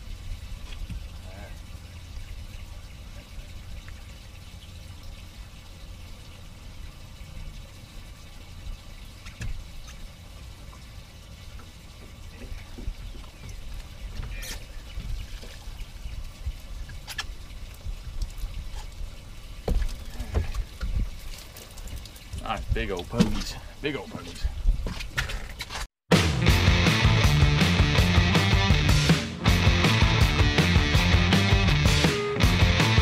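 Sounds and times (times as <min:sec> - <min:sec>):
water dripping off net: 0:15.2 - 0:23.1.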